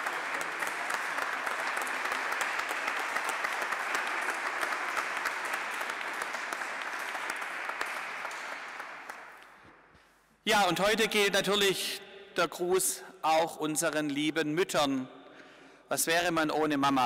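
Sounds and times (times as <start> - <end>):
congregation applauding: 0.0 - 9.7.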